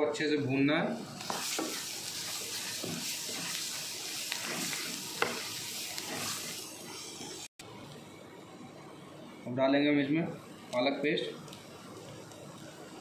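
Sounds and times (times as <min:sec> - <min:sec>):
spinach sizzling in oil: 0:00.9 - 0:07.5
wooden spoon scraping pan: 0:01.2 - 0:07.5.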